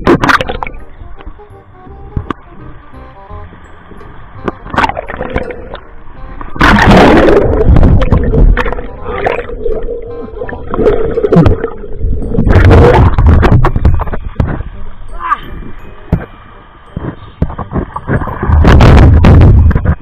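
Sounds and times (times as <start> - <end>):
water gurgling underwater: 0.0 - 0.8, 4.7 - 5.8, 6.5 - 13.9
background music: 0.0 - 19.9.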